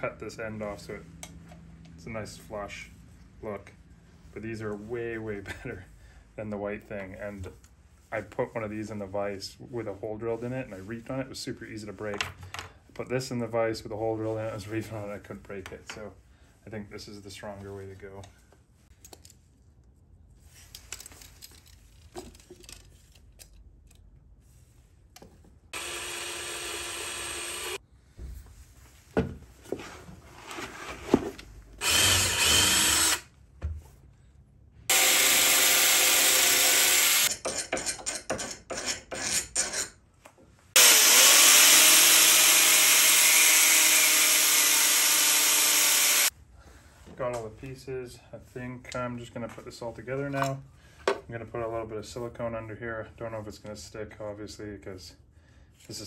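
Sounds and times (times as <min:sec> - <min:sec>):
handheld power tool running: 0:25.8 - 0:27.8, 0:31.8 - 0:33.3, 0:34.9 - 0:37.3, 0:40.8 - 0:46.3.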